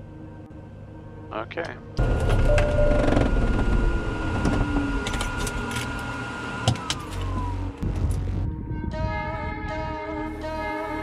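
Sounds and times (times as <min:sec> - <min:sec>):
engine clunk: 0:02.0 - 0:06.0
piston engine running down: 0:02.0 - 0:07.9.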